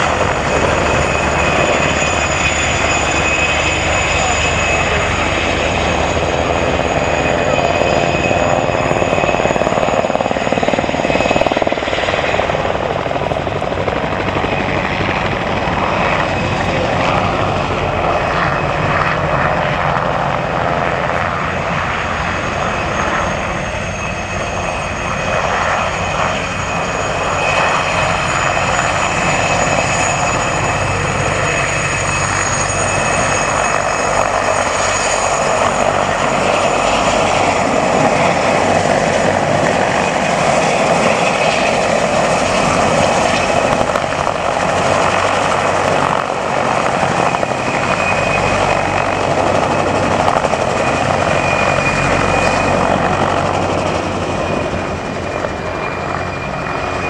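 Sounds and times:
helicopter rotor noise: 0.0s - 57.0s
high turbine whistle: 0.0s - 57.0s.

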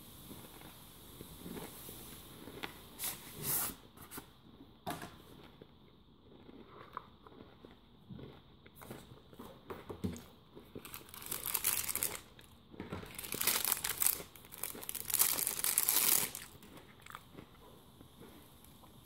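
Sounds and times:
plastic bag crinkling: 10.8s - 16.7s.

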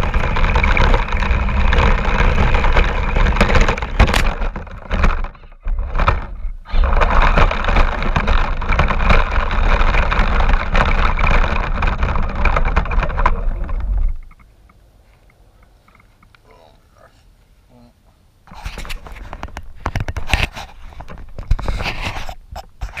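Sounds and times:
radio-controlled car running: 0.0s - 14.2s.

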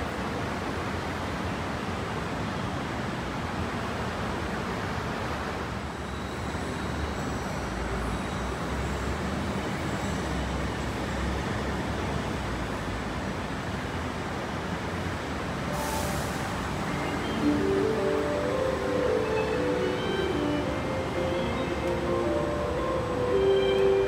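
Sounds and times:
metro platform rumble: 14.4s - 24.0s
deeper train rumble: 15.6s - 24.0s
faint high tones: 15.7s - 24.0s.

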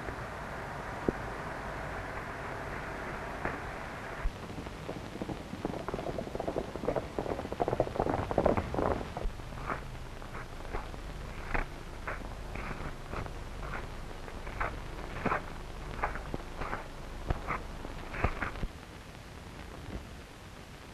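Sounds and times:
film soundtrack hiss: 0.0s - 20.9s
hooves and footsteps on dirt: 4.9s - 18.7s.

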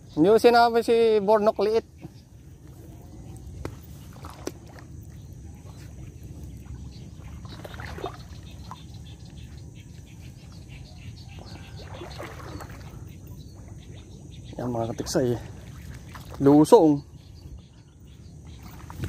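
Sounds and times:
wind buffeting microphone: 13.4s - 19.0s.

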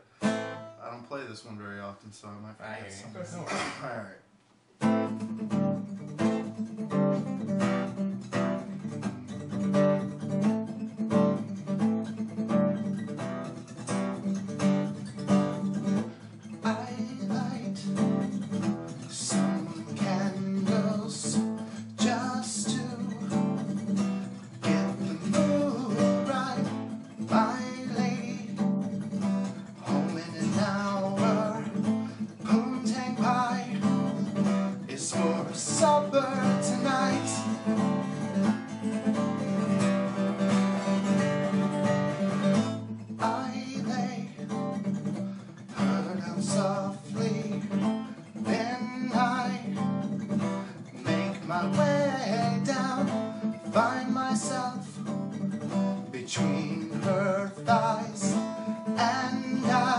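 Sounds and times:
acoustic guitar strumming: 0.0s - 1.3s, 4.7s - 59.9s
man singing: 15.9s - 29.0s, 29.6s - 39.8s, 42.5s - 44.8s, 45.6s - 55.4s, 56.0s - 59.9s.

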